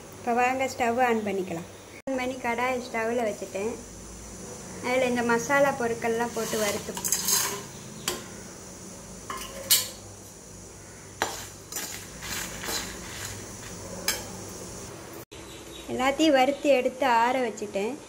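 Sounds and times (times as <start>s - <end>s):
spatula scraping metal pan: 6.0s - 8.4s, 11.2s - 14.4s.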